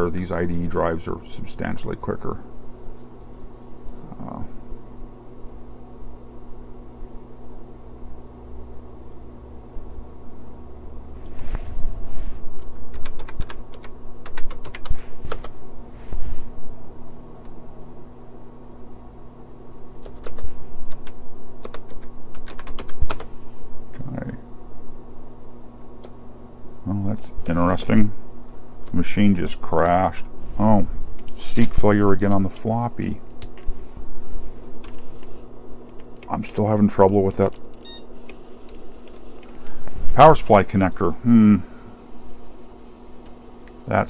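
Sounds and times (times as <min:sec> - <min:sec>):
steady low hum: 0:00.0 - 0:44.0
keyboard typing clicks: 0:12.6 - 0:15.5, 0:20.0 - 0:23.3.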